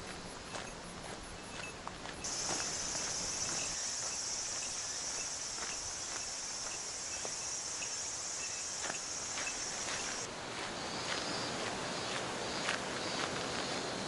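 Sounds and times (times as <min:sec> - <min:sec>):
footsteps on dirt track: 0:00.0 - 0:14.0
insects singing: 0:00.1 - 0:10.3.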